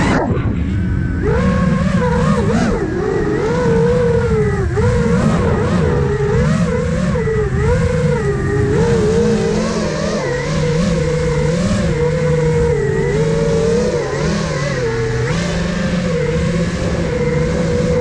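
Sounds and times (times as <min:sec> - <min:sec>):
rough low rumble: 0:00.0 - 0:13.0
drone motors and propellers whining: 0:00.0 - 0:18.0.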